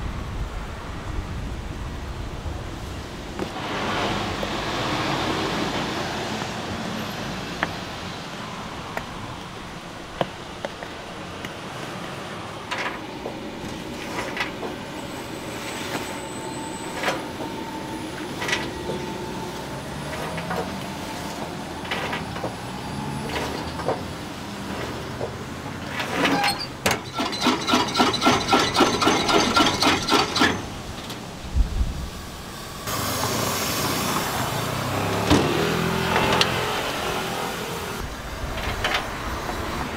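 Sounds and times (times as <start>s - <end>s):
loud fast rattle: 26.9s - 30.9s.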